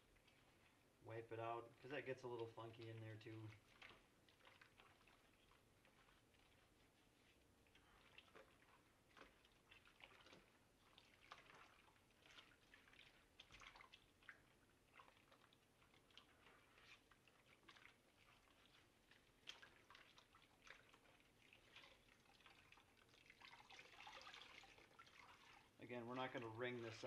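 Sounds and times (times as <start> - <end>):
soapy water squishing and sloshing: 0.0 - 27.0.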